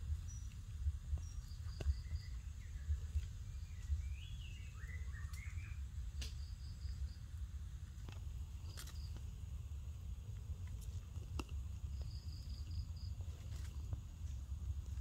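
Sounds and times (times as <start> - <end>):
steady low rumble: 0.0 - 15.0
rustling dry leaf litter: 7.8 - 15.0.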